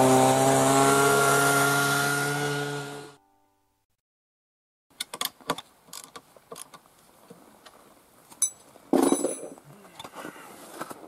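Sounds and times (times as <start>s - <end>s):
rustling scrape: 9.2s - 11.0s.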